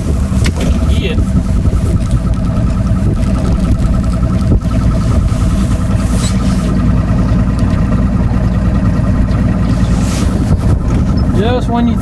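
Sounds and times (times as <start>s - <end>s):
boat motor running: 0.0s - 12.0s.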